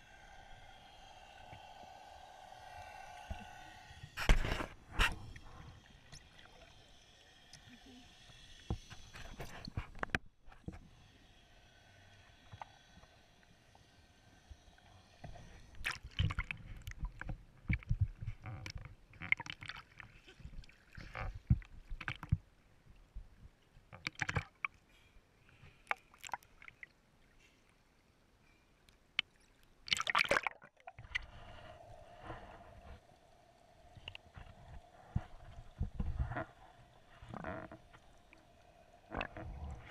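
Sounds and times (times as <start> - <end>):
steady low hum: 0.0 - 9.8, 31.2 - 39.9.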